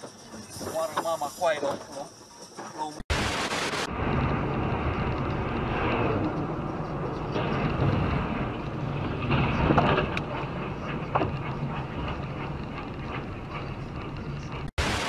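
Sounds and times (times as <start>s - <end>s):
road and engine drone inside car: 3.4s - 14.8s.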